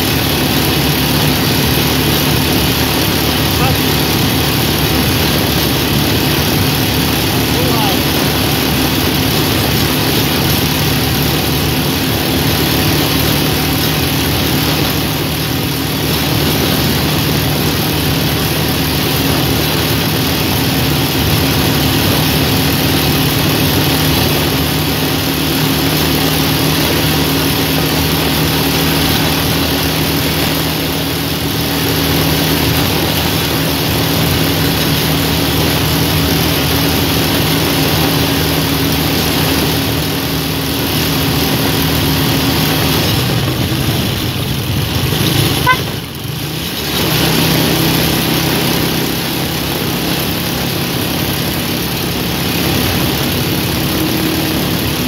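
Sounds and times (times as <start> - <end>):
motorcycle engine running: 0.0 - 55.0
wind rush on microphone: 8.1 - 47.9.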